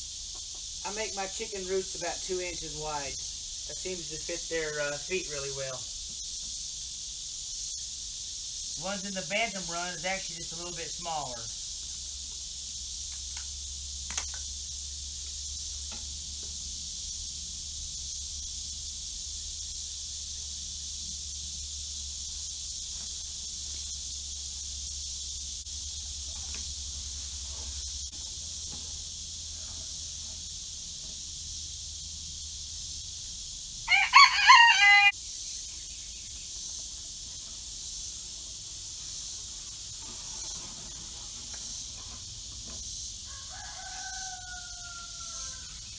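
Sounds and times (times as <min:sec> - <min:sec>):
high-pitched insect drone: 0:00.0 - 0:45.9
rooster crowing: 0:33.8 - 0:35.2, 0:43.2 - 0:45.9.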